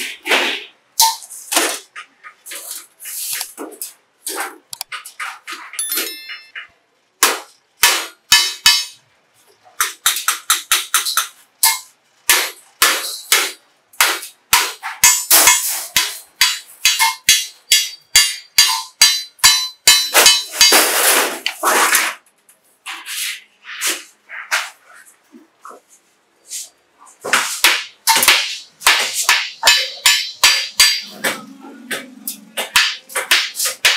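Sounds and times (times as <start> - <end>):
hammer striking steel sheet: 7.2 - 9.0, 9.9 - 22.1, 27.3 - 33.9.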